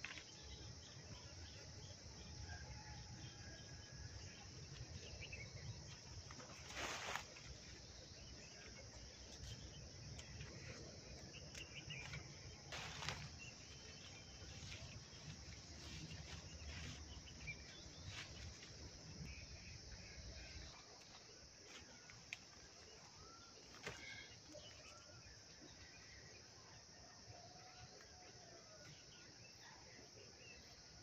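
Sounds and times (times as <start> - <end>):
insects chirring: 0.0 - 31.0
leafy branches rustling: 6.2 - 8.0, 12.0 - 19.2.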